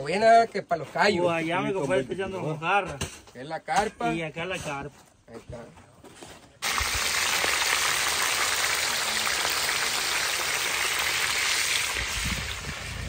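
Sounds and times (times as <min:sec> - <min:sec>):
hot oil sizzling: 0:06.6 - 0:13.0.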